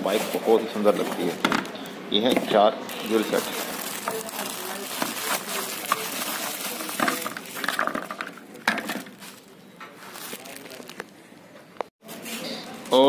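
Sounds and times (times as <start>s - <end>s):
plastic covers knocking together: 0.9s - 9.5s
plastic bag crinkling: 2.9s - 11.2s.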